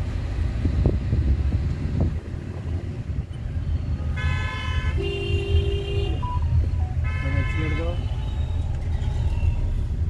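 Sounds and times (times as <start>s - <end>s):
car engine and road noise: 0.0s - 10.0s
vehicle horns honking: 4.1s - 8.6s.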